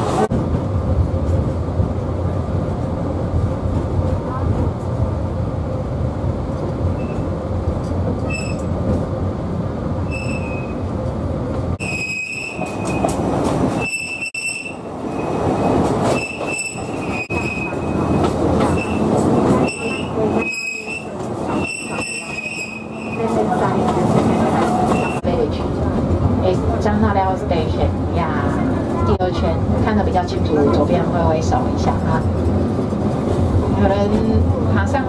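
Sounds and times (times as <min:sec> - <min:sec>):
train wheels rumbling on rail: 0:00.0 - 0:35.0
high-pitched wheel squeal: 0:08.3 - 0:08.7, 0:10.1 - 0:10.8, 0:11.8 - 0:13.0, 0:16.1 - 0:18.1, 0:19.6 - 0:23.3.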